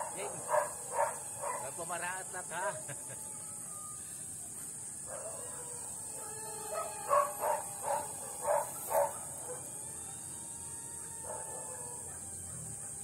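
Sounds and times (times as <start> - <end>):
dog barking: 0.0 - 1.7, 5.1 - 9.7, 11.2 - 13.0
high-pitched drone: 6.0 - 12.7.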